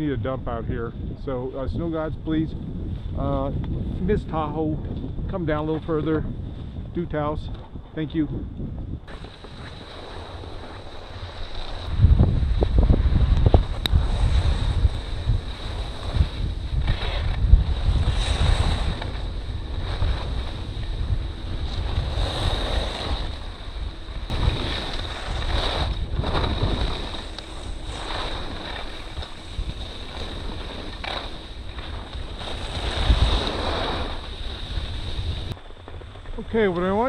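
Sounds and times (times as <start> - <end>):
wind buffeting microphone: 0.0 - 37.0
faint steady high whine: 9.0 - 37.0
skis scraping hard snow: 9.1 - 37.0.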